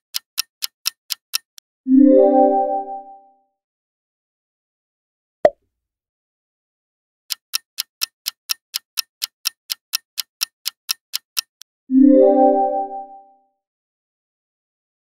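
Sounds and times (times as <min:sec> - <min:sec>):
clock ticking: 0:00.0 - 0:01.6, 0:07.3 - 0:11.6.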